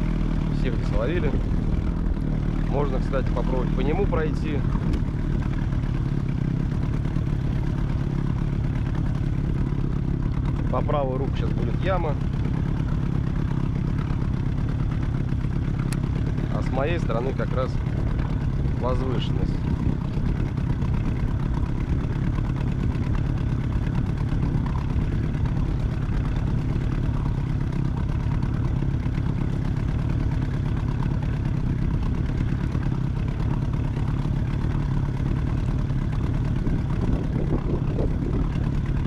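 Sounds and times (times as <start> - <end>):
outboard motor droning: 0.0 - 39.0.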